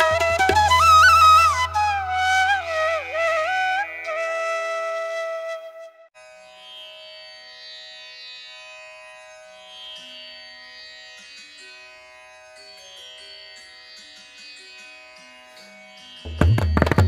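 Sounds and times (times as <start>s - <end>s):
plucked string notes: 16.3s - 17.0s.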